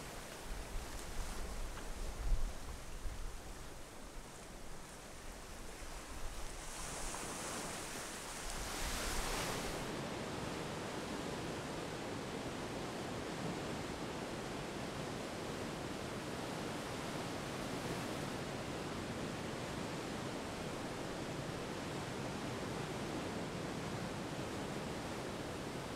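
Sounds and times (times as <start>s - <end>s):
rush of surf: 0.0s - 25.9s
ocean waves washing in: 6.5s - 10.2s.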